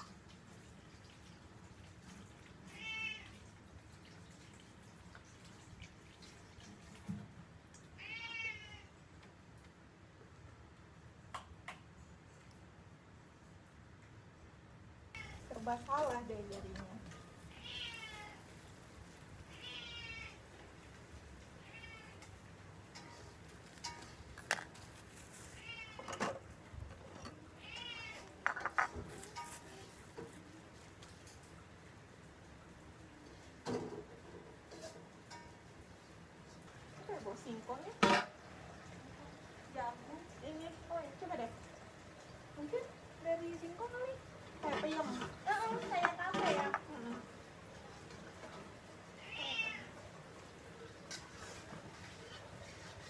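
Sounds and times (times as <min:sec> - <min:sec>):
cat meowing: 0:02.7 - 0:03.4, 0:08.0 - 0:08.9, 0:17.5 - 0:18.5, 0:19.5 - 0:20.4, 0:21.6 - 0:22.3, 0:25.6 - 0:26.1, 0:27.5 - 0:28.4, 0:49.2 - 0:50.0.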